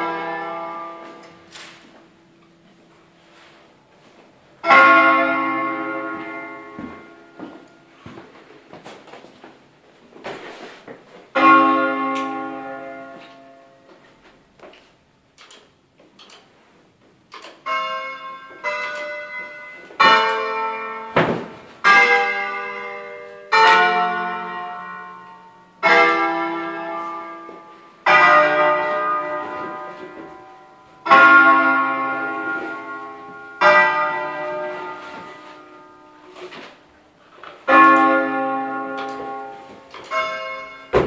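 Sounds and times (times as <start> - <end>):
church bells ringing: 0.0 - 9.0, 11.3 - 14.4, 17.4 - 41.0.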